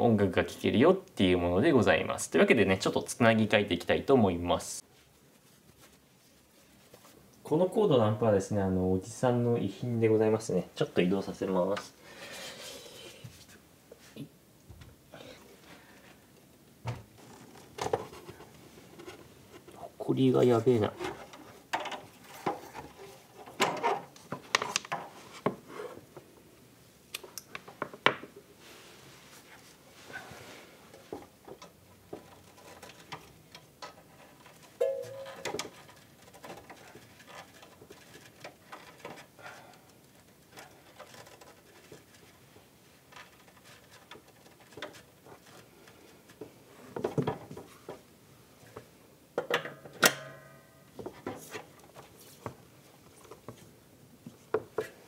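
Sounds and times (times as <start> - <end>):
handling knocks clicks and rubs: 30.9 - 50.1, 50.9 - 55.0.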